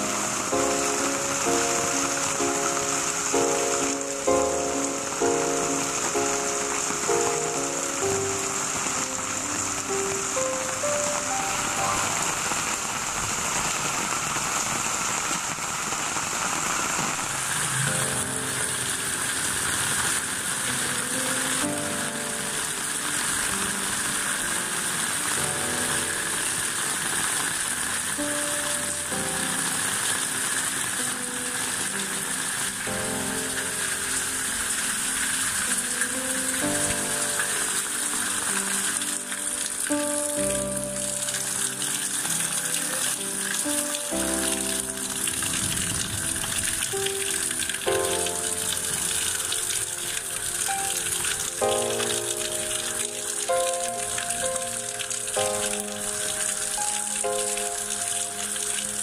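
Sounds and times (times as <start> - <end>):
slow instrumental melody: 0.0 - 13.2, 17.8 - 59.0
steady rain hiss: 0.0 - 59.0
water running off roof: 0.0 - 59.0.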